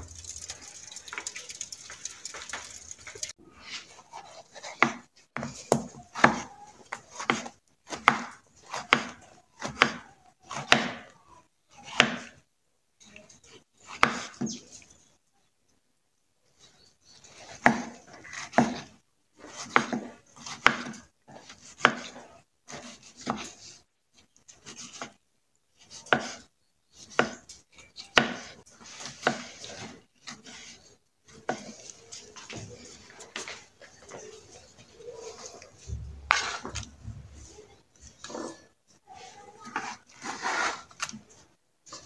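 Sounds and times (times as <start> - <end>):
knife chopping on wooden board: 7.2 - 11.0, 27.1 - 27.4, 28.2 - 29.5.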